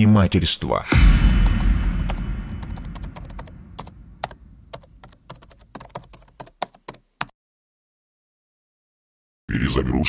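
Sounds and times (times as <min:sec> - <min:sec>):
low rumble: 0:00.9 - 0:05.7.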